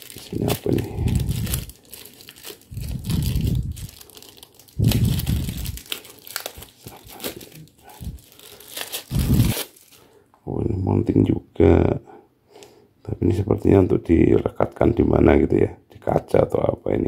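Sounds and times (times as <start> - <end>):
protective wrapping crinkling: 0.0 - 10.2.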